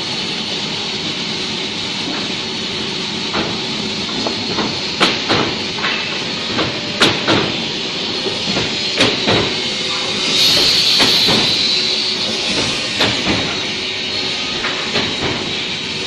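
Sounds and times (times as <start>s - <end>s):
wood cutting machine hissing: 2.5s - 16.0s
sharp machine knocks: 8.5s - 13.8s.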